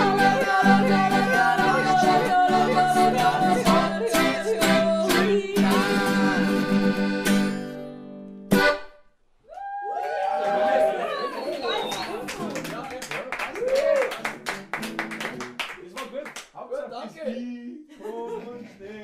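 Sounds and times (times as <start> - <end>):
person singing: 0.0 - 7.0.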